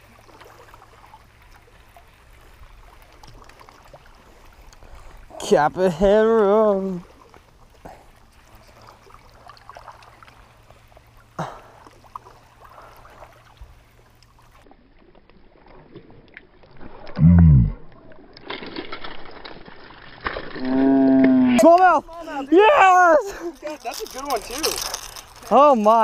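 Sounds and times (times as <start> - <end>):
fishing rod and reel noise: 0.0 - 26.0
water lapping on rocks: 0.0 - 26.0
man exclaiming: 21.0 - 23.7.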